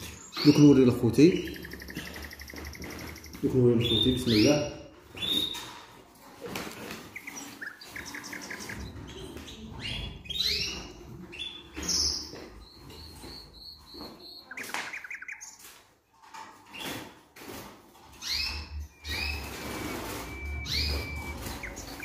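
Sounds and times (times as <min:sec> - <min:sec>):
canaries chirping and trilling: 0:00.0 - 0:22.0
knocks from bird cages: 0:01.5 - 0:04.0.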